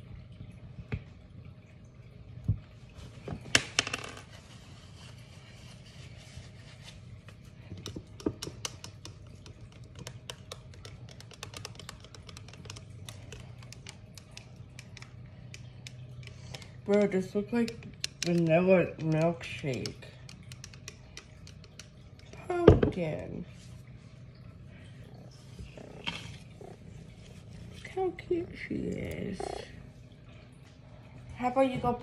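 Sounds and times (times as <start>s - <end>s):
faint low hum: 0.0s - 32.0s
utensil tapping plastic cup: 7.8s - 16.0s, 17.6s - 22.9s.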